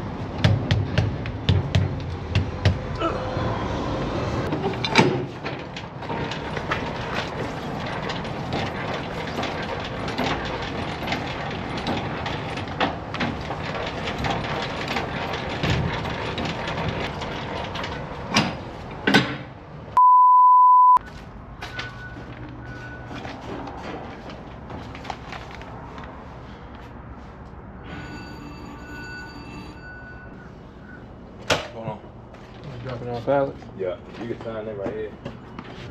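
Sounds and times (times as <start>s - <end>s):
loud knocks: 0.4s - 3.0s
high steady beep: 20.0s - 21.0s.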